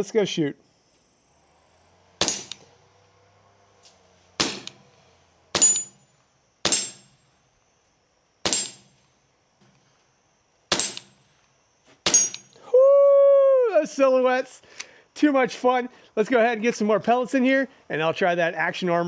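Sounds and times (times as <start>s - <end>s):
pellet ringing on steel target: 2.2s - 2.6s, 4.4s - 4.8s, 5.6s - 7.3s, 8.4s - 9.0s, 10.7s - 11.3s, 12.0s - 12.6s
air pistol shots: 2.2s - 2.7s, 4.4s - 4.9s, 5.5s - 6.0s, 6.6s - 7.2s, 8.4s - 9.0s, 10.7s - 11.3s, 12.0s - 12.5s.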